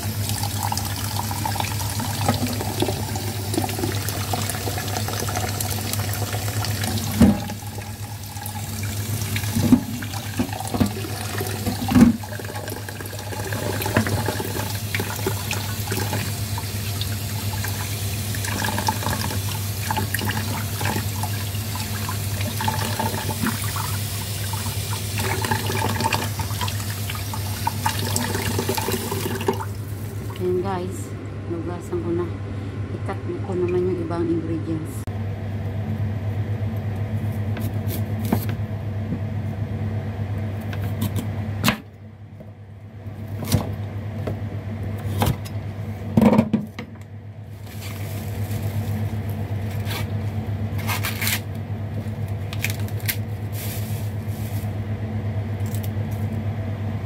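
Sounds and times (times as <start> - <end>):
tap running into saucepan: 6.8 - 7.6, 9.5 - 12.6, 13.5 - 15.4.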